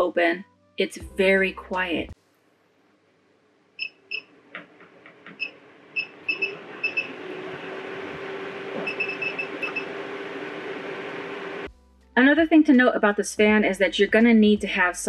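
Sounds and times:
fan motor hum: 0:04.1 - 0:11.7
control panel beeping: 0:05.3 - 0:10.2.

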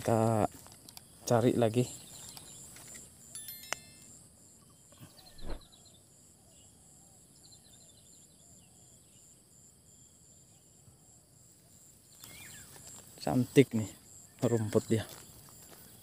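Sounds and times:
pulsing insect trill: 0:00.0 - 0:16.0
soft thump: 0:05.4 - 0:05.7.

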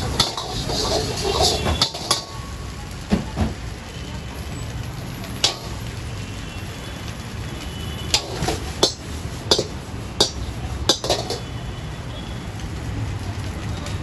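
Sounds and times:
metal ladle clanking on wok: 0:00.0 - 0:02.4, 0:05.4 - 0:05.8, 0:08.1 - 0:11.4
gas burner rumble: 0:00.0 - 0:14.0.

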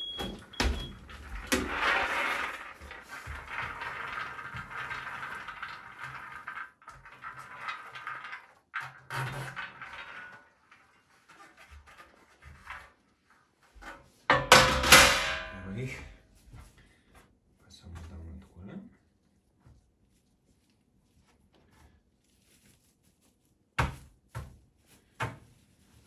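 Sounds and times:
nuts rattling off metal tray: 0:01.0 - 0:10.8.

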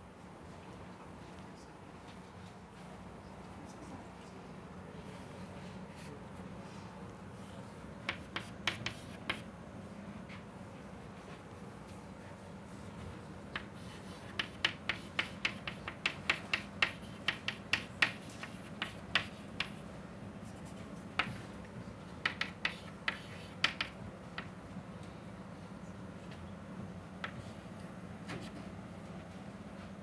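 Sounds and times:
chalk tapping on chalkboard: 0:08.0 - 0:09.5, 0:13.5 - 0:19.9, 0:20.5 - 0:21.5, 0:22.2 - 0:24.5, 0:27.2 - 0:27.6.

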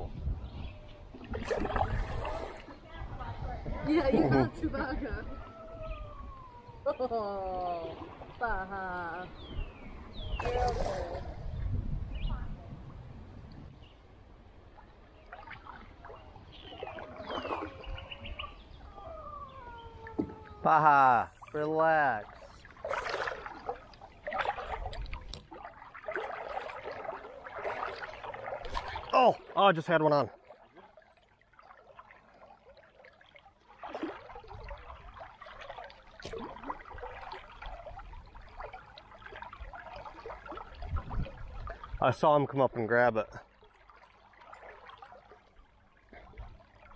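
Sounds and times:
river current trickling: 0:01.1 - 0:46.9
dog whining: 0:18.9 - 0:20.7.

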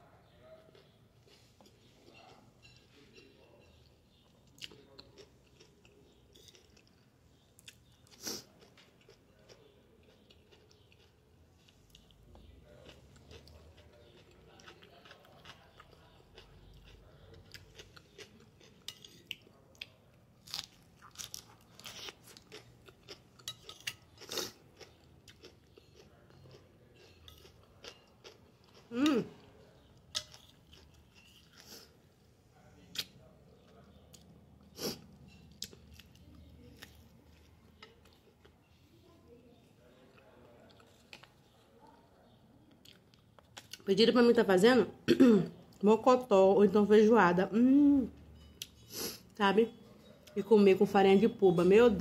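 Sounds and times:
food crunching: 0:00.7 - 0:32.1, 0:32.9 - 0:38.7, 0:39.8 - 0:43.9
person chewing food: 0:03.7 - 0:32.1, 0:32.9 - 0:38.8, 0:39.9 - 0:41.6, 0:42.7 - 0:43.8.

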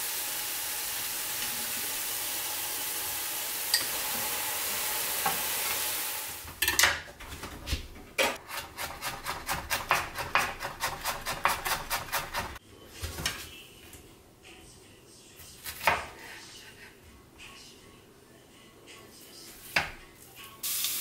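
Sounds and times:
vegetables sizzling in a frying pan: 0:00.0 - 0:06.5, 0:20.6 - 0:21.0.

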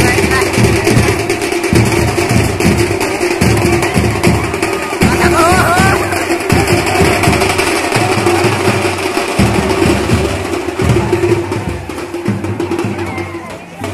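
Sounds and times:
loud music with heavy drumming: 0:00.0 - 0:13.9.

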